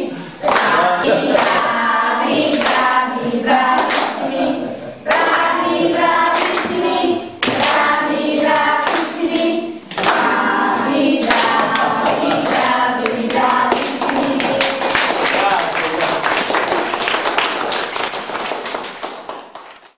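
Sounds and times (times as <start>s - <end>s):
group of voices singing: 0.0s - 15.6s.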